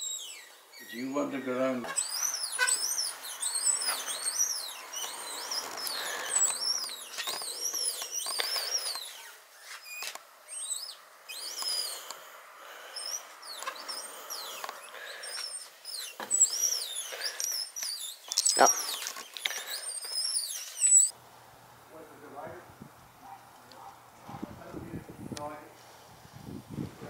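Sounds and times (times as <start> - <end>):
squeaking wheels: 0.0 - 21.2
wheelchair rolling on concrete: 0.8 - 11.9, 13.4 - 21.1.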